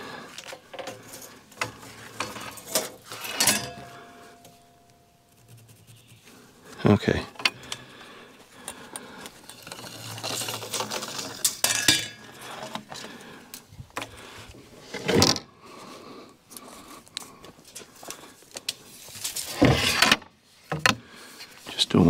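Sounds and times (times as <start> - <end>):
scraping: 8.7 - 13.2.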